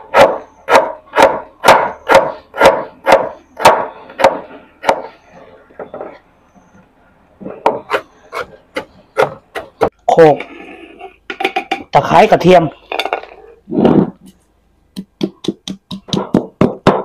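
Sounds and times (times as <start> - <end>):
knife chopping on wooden board: 0.1 - 5.1, 7.6 - 9.9.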